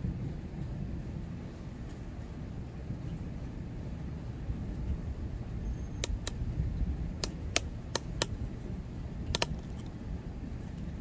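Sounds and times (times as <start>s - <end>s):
thunder rumble: 0.0s - 11.0s
sharp ticks: 6.0s - 6.4s, 7.2s - 8.4s, 9.3s - 9.9s.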